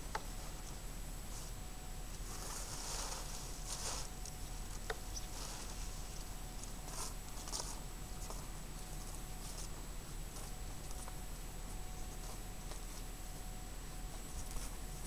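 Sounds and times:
dry leaves being raked: 2.2s - 4.2s.

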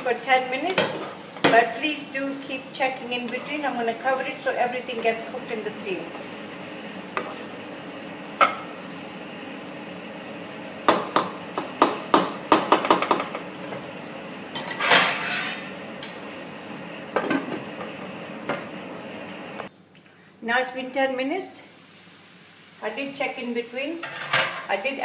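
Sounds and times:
spatula knocking on frying pan: 10.9s - 13.4s.

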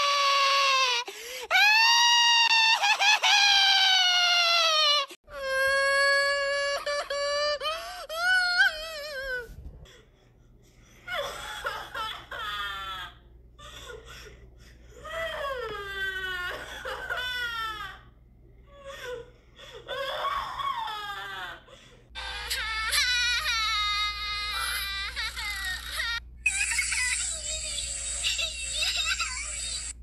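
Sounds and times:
high-pitched voice sobbing: 0.0s - 10.1s, 18.6s - 30.0s.

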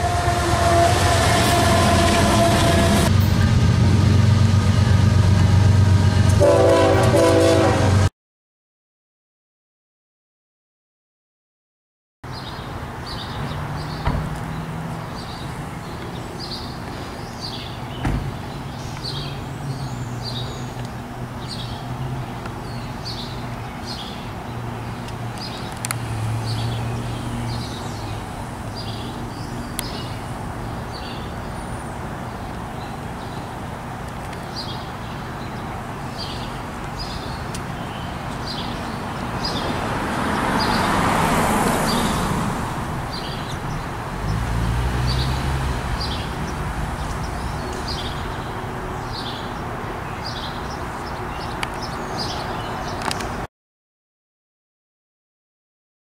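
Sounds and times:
distant traffic hum: 0.0s - 8.1s, 12.3s - 53.5s
small birds chirping: 12.3s - 33.5s, 45.1s - 53.4s
car passing: 18.6s - 32.3s, 35.8s - 50.8s.

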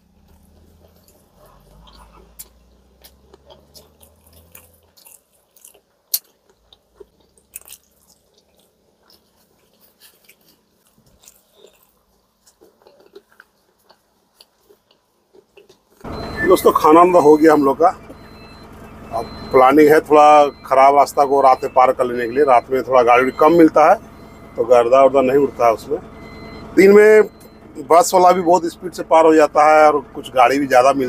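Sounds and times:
chewing: 0.0s - 16.2s.

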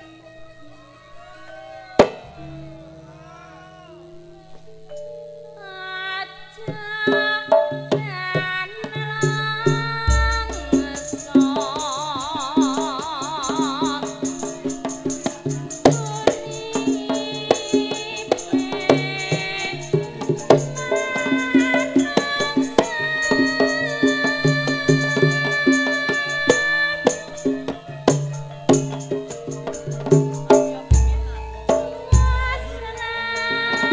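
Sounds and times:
gong-chimes and metallophones: 0.1s - 6.6s, 9.5s - 33.9s
woman singing long wavering note: 5.5s - 28.1s, 30.6s - 33.9s.

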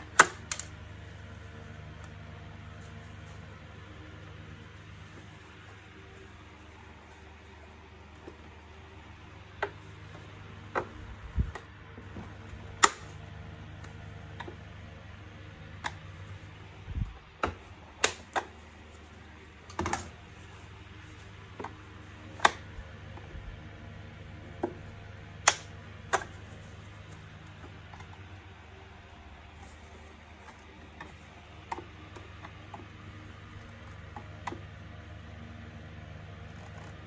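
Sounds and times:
plastic parts clicking and knocking: 0.0s - 0.8s.

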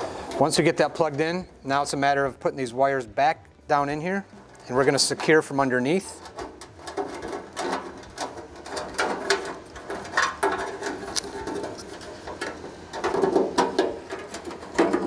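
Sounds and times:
wiring handled in metal hopper: 4.1s - 15.0s.

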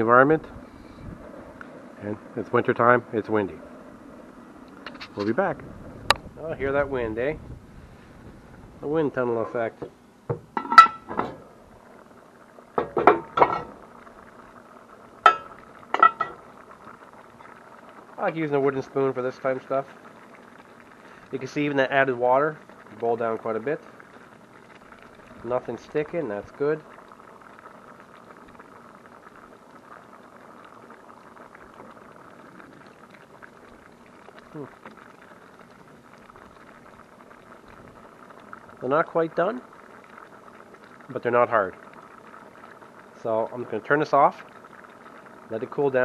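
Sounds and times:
water boiling and bubbling: 0.0s - 46.0s
metal lid clanking on pot: 10.3s - 11.4s, 12.8s - 13.8s, 15.3s - 16.4s.

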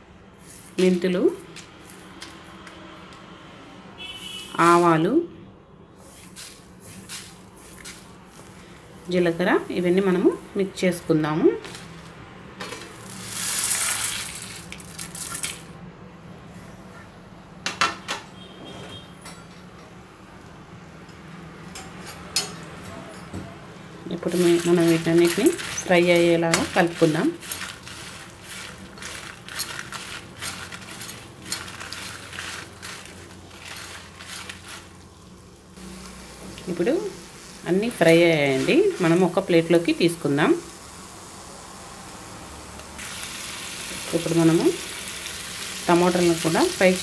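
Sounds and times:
spices sizzling in hot oil: 12.8s - 15.6s, 24.2s - 47.0s
metal spatula scraping a pan: 24.2s - 35.0s.

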